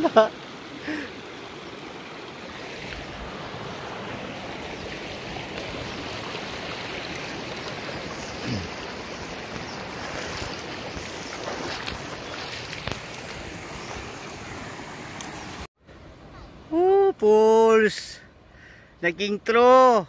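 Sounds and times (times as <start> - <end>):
flowing water rushing: 0.0 - 15.7.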